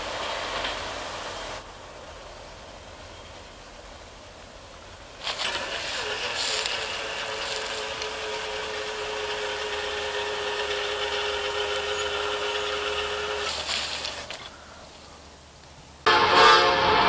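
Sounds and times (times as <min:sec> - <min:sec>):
crossing gate motors whining: 0:05.2 - 0:15.0.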